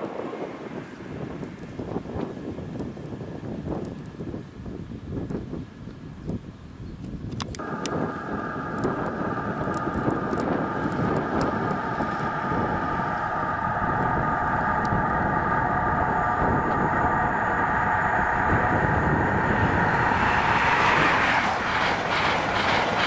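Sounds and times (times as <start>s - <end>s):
diesel train engine with high whine: 7.3s - 23.0s.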